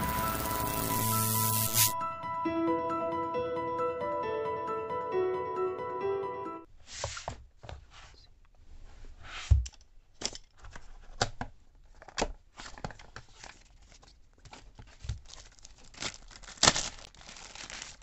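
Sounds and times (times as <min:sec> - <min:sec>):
paper wrapping crinkling: 0:12.6 - 0:18.0.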